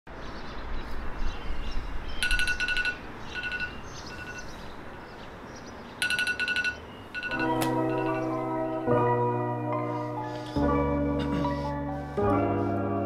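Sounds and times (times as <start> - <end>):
smartphone alarm beeping: 2.2 - 4.5, 6.0 - 8.3.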